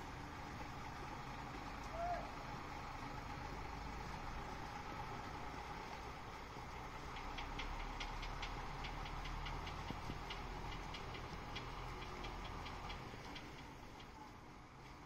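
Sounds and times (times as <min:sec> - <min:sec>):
diesel truck engine idling: 0:00.0 - 0:15.0
quick light ticks: 0:06.8 - 0:14.2.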